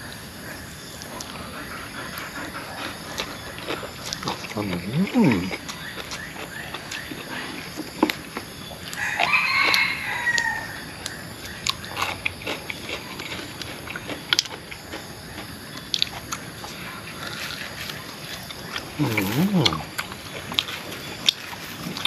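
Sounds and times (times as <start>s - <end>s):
clicks and smacks of eating: 2.1s - 22.0s
rooster crowing: 8.9s - 11.2s.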